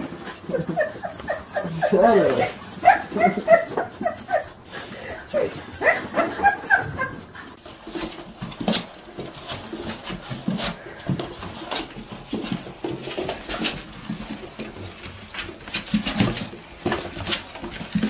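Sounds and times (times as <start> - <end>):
dog whimpering yips: 0.0 - 7.6.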